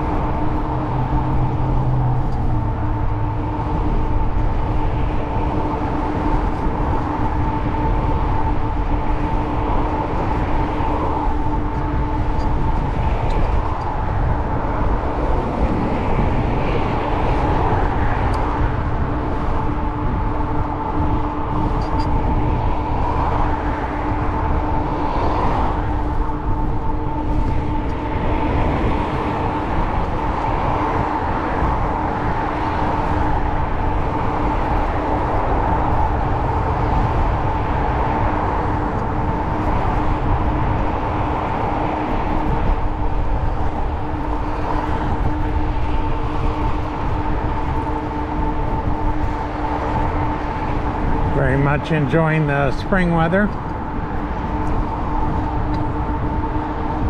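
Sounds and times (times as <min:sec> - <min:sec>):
faint whine: 0:00.0 - 0:57.0
wind rumbling on microphone: 0:00.0 - 0:57.0.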